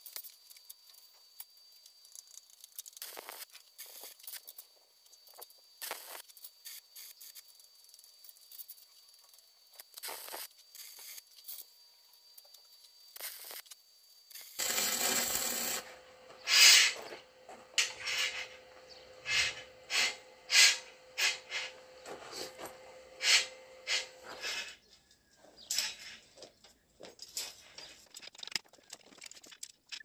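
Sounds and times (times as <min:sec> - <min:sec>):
burst of hiss: 0:14.5 - 0:17.0, 0:19.3 - 0:21.7
rough scraping strokes: 0:14.6 - 0:24.8.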